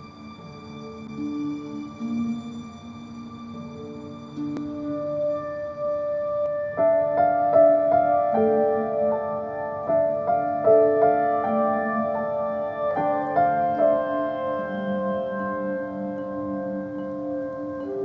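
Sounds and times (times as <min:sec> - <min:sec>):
slow soft piano music: 0:00.0 - 0:18.0.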